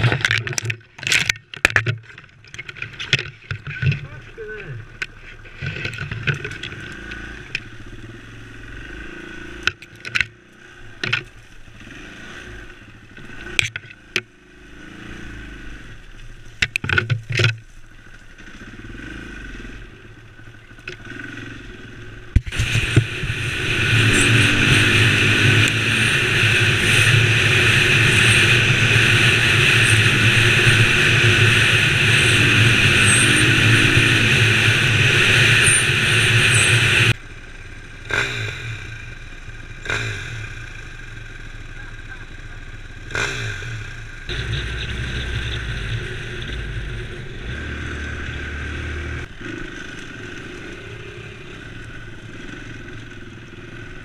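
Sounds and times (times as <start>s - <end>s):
branches striking motorcycle: 0.0s - 54.0s
motorcycle engine: 0.0s - 54.0s
wind rushing over microphone: 22.4s - 37.2s.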